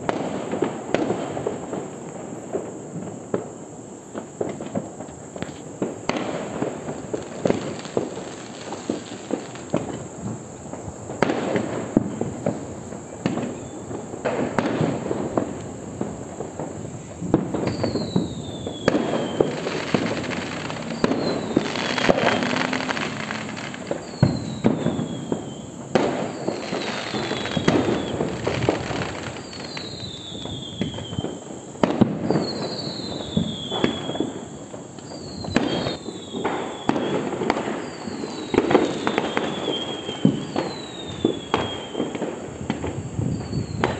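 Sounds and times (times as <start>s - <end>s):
firework bangs and crackling: 0.0s - 43.9s
firework falling whistles: 0.0s - 43.9s.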